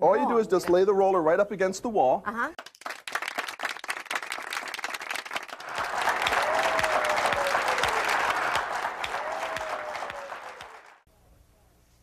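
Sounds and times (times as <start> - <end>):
audience applauding: 2.6 - 11.1.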